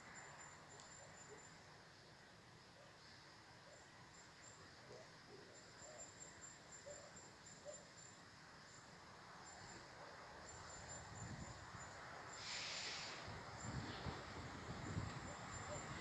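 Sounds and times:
faint chirps: 0:00.0 - 0:16.0
low rumble of freight train: 0:08.7 - 0:16.0.

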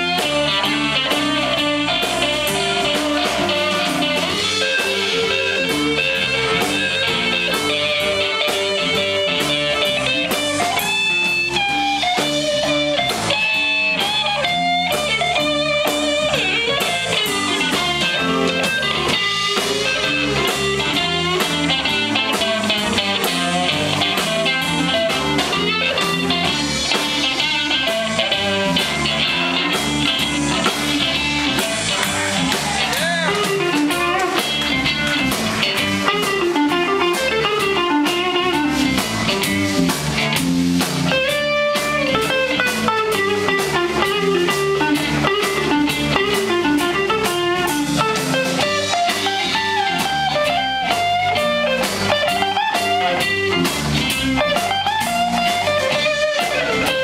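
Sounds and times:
bass guitar: 0:00.0 - 0:57.0
drum kit: 0:00.0 - 0:57.0
electric guitar with bent notes: 0:00.0 - 0:57.0.

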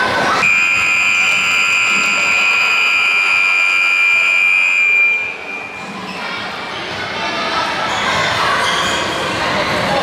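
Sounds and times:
scoreboard buzzer tone: 0:00.4 - 0:05.9.

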